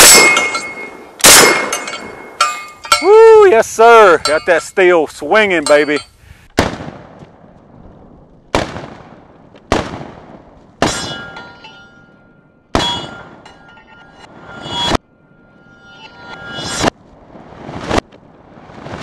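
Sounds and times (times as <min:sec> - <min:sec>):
steel target ringing: 0:00.0 - 0:06.2, 0:10.8 - 0:16.9
shotgun shots: 0:01.2 - 0:02.1, 0:06.6 - 0:07.2, 0:08.5 - 0:11.2.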